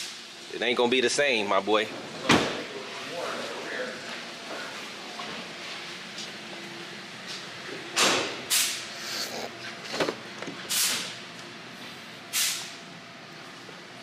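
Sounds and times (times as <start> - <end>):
compressed air hissing: 8.5 - 9.5, 10.7 - 11.1, 12.3 - 12.8.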